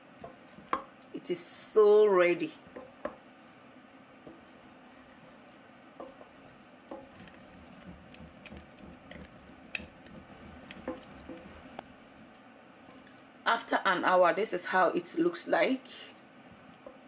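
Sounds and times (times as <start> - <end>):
spoon stirring thick pudding: 2.6 - 13.3.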